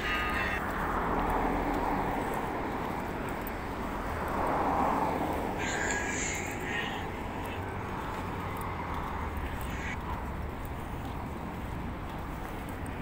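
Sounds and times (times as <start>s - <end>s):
high-pitched squeal: 0.0s - 0.6s
road traffic passing: 0.0s - 13.0s.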